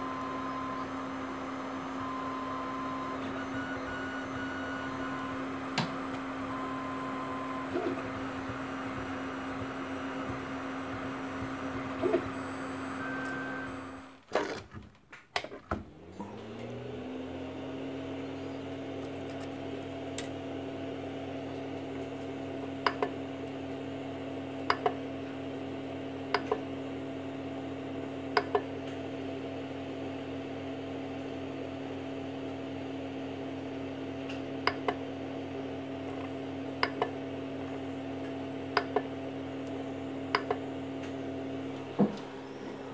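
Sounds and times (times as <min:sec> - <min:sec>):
cooling fans humming: 0:00.0 - 0:14.2, 0:33.6 - 0:42.9.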